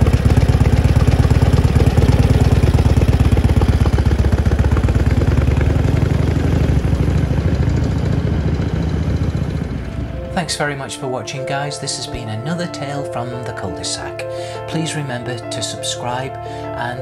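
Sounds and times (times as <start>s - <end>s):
motorcycle engine pulling away: 0.0s - 10.9s.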